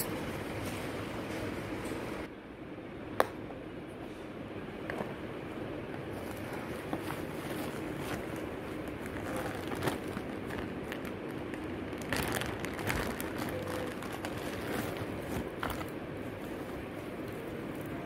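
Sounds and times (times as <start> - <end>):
plastic wrap rustling and crinkling: 6.0 - 18.0.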